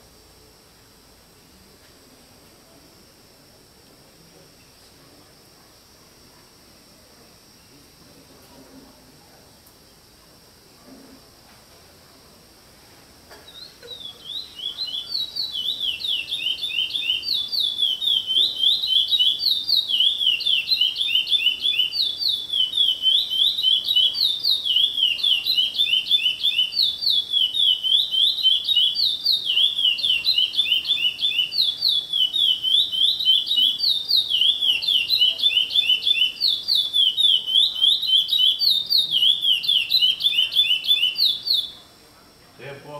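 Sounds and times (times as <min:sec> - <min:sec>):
songbird singing: 0:13.3 - 0:41.9.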